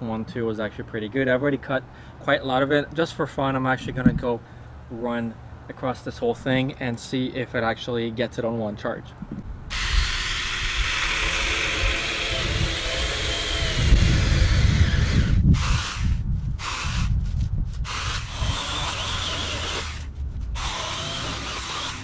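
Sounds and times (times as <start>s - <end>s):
mini chainsaw whining: 9.7s - 17.1s, 17.8s - 22.0s
chainsaw cutting branches: 9.7s - 22.0s.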